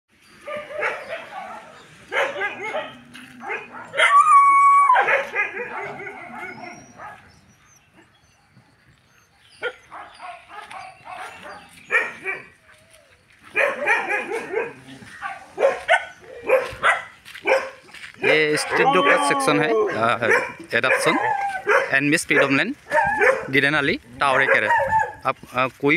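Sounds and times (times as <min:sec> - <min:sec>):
dogs barking and yipping: 0:00.2 - 0:25.4
dog whining: 0:02.4 - 0:08.5, 0:18.7 - 0:20.1.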